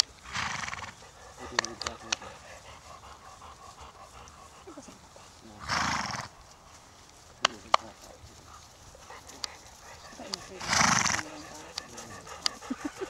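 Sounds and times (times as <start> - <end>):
horse breathy snort: 0.0 - 6.8, 8.4 - 13.0
sharp clicks: 1.5 - 2.3.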